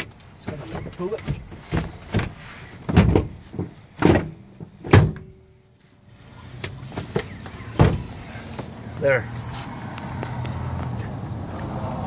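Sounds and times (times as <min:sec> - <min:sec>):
heavy knocks of seat latch: 0:07.8 - 0:08.1.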